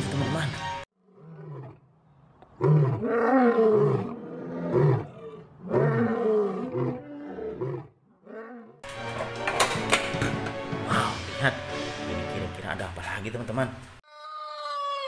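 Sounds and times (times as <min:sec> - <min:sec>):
lion roaring: 0:01.0 - 0:01.9, 0:02.5 - 0:08.8.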